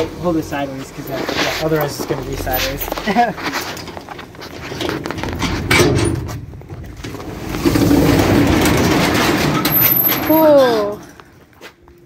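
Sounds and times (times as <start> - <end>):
metal door rattling: 4.7 - 10.9.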